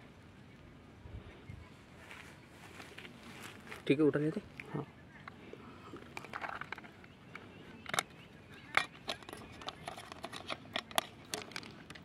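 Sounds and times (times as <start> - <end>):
plastic clips clicking and snapping: 7.8 - 12.0.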